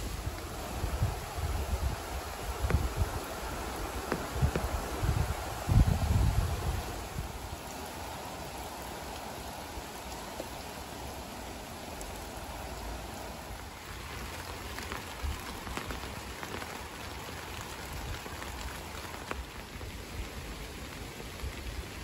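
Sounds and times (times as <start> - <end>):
rain falling on leaves: 0.0 - 22.0.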